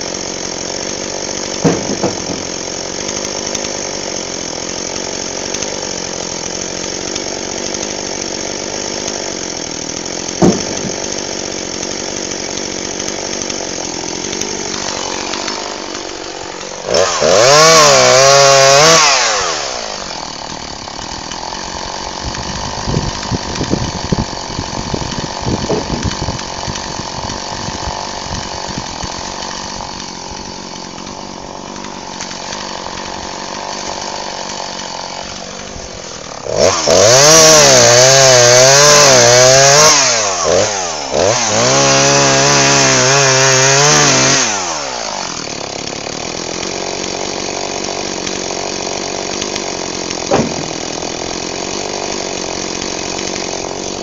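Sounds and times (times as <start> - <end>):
chainsaw idling: 0.0 - 54.0
chainsaw revving cutting wood: 0.0 - 54.0
irregular knocks and clatters: 1.6 - 2.5.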